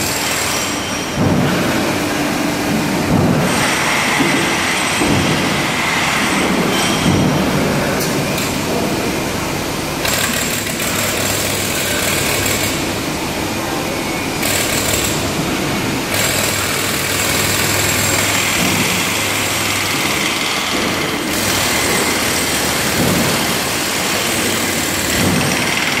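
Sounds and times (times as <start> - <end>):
engine-like machinery running: 0.0 - 26.0.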